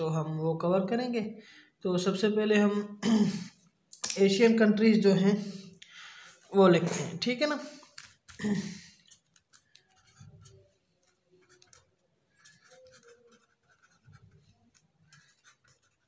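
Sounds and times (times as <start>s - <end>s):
marker squeaking on paper: 9.0s - 16.0s.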